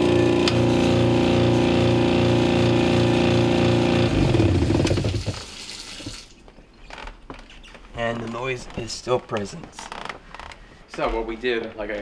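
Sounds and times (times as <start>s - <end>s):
garbage disposer humming and throbbing: 0.0s - 6.3s
water running from faucet: 4.7s - 6.4s.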